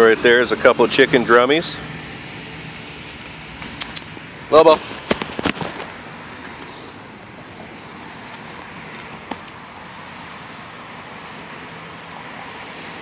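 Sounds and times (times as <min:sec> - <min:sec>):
distant road traffic: 0:00.0 - 0:13.0
sharp click: 0:03.6 - 0:04.1.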